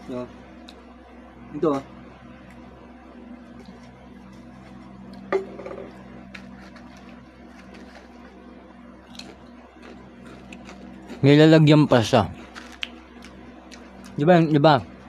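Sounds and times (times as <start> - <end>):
low hum: 0.0 - 15.0
chip being bitten: 6.3 - 8.3, 9.0 - 11.3, 11.9 - 14.2.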